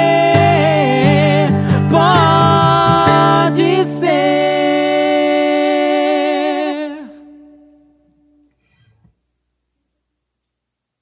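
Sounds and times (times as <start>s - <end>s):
acoustic guitar: 0.0s - 9.2s.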